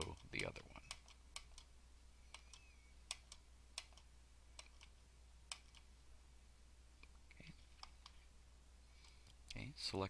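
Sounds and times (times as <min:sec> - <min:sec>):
faint low hum: 0:00.0 - 0:10.0
mouse button clicking: 0:02.3 - 0:04.9.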